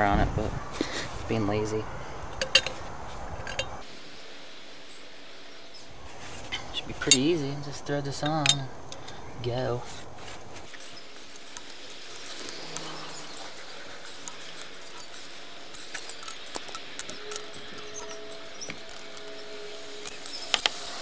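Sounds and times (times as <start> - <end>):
steady hiss: 0.0 - 21.0
wrench clicking on metal: 2.4 - 2.8, 14.1 - 21.0
threaded fitting clicking and rubbing: 10.6 - 21.0.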